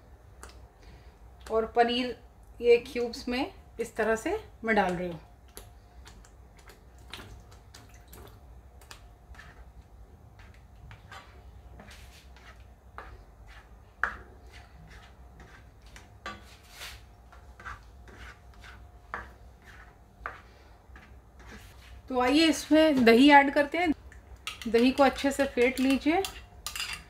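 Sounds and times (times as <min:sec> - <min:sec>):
spatula scraping a pan: 0:09.3 - 0:23.0.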